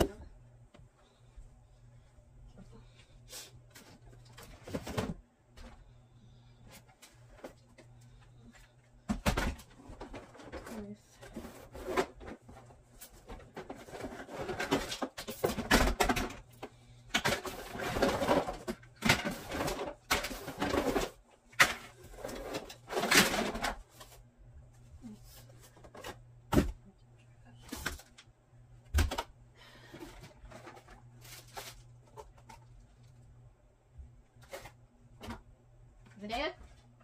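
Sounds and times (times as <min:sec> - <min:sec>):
toys rustling and clattering: 0:06.7 - 0:24.2, 0:29.0 - 0:33.2.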